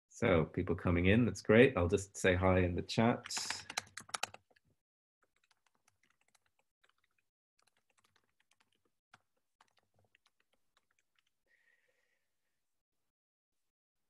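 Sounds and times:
typing on computer keyboard: 0:03.2 - 0:11.3.

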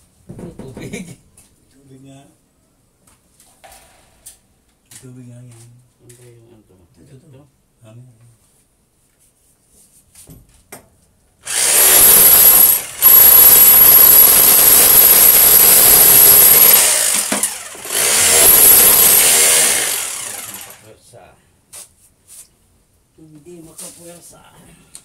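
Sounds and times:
electric power tool whining: 0:11.4 - 0:20.8.

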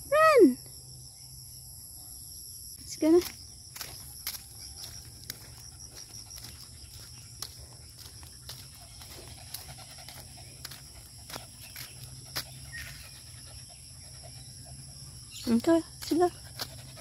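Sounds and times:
footsteps on gravel: 0:03.1 - 0:13.4
small dog panting: 0:04.8 - 0:17.0.

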